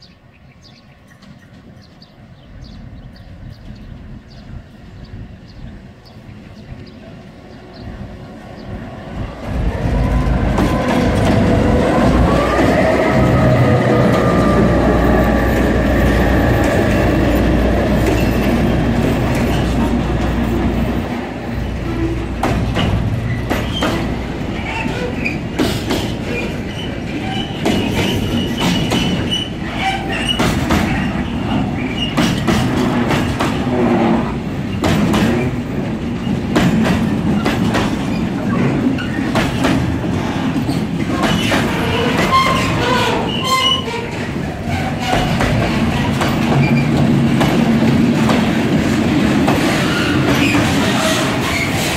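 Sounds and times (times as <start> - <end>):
locomotive engine hum: 4.0 - 51.7
wheels clacking over rail joints: 9.4 - 51.9
high wheel squeals: 41.4 - 45.4.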